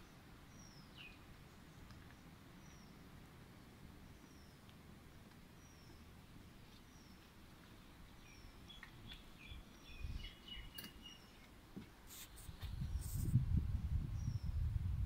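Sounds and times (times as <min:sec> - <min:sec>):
high downward-sliding bird chirp: 0:00.0 - 0:01.9, 0:02.6 - 0:03.1, 0:05.5 - 0:11.6, 0:14.0 - 0:14.7
lower bird twittering: 0:00.0 - 0:03.1, 0:04.0 - 0:04.7, 0:05.5 - 0:11.6, 0:14.0 - 0:14.7.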